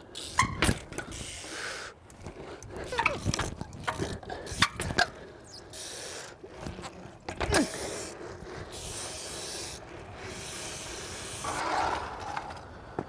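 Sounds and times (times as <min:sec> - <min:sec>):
short squeaks: 0:00.3 - 0:00.9.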